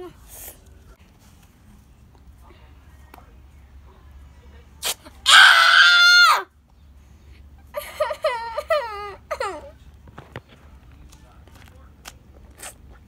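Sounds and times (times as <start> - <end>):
girl screaming in pain: 5.3 - 6.4.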